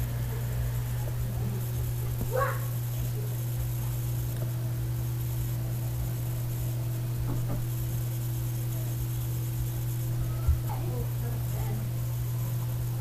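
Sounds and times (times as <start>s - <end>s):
low hum with faint hiss: 0.0s - 13.0s.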